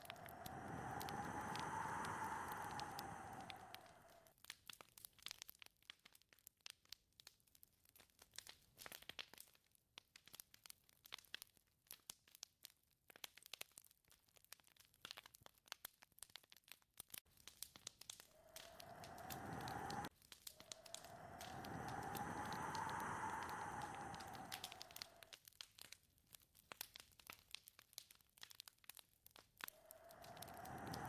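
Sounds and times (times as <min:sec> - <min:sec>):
wind gust whistling: 0:00.0 - 0:04.2, 0:18.3 - 0:25.3, 0:29.8 - 0:31.0
faint crackles: 0:00.0 - 0:31.0.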